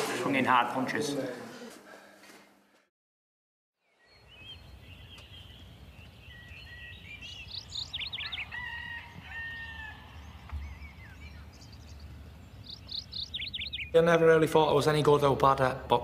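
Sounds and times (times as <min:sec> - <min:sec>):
birds chirping and trilling: 0:03.8 - 0:16.0.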